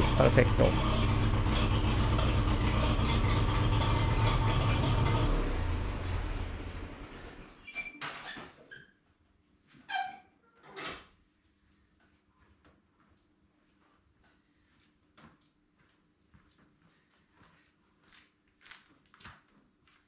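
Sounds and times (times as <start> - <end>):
tractor engine idling: 0.0 - 7.2.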